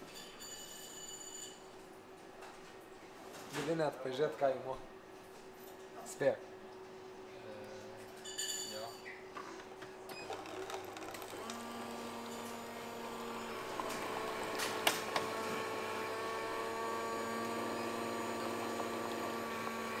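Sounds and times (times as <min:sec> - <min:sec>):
coffee machine humming: 0:09.4 - 0:20.0.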